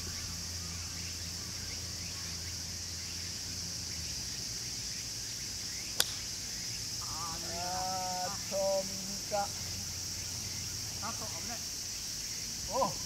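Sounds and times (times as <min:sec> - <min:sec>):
insects chirring: 0:00.0 - 0:13.0
sharp click: 0:06.0 - 0:06.2.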